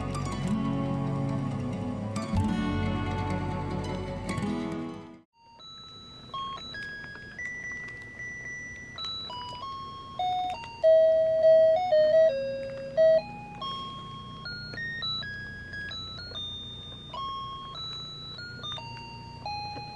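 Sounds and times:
toy keyboard beeping notes: 5.4 - 19.9.

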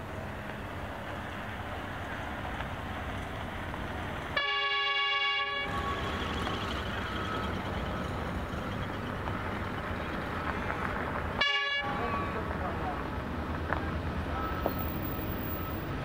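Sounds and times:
train rumble: 0.0 - 16.0
locomotive horn: 4.3 - 8.1, 11.3 - 12.5.

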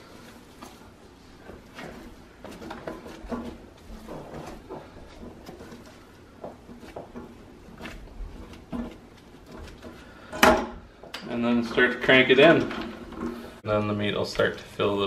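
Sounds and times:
sausage meat squishing: 0.0 - 11.2.

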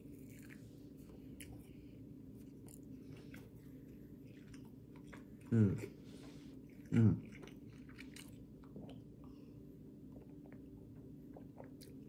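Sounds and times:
person chewing: 0.0 - 9.3, 11.3 - 12.0.

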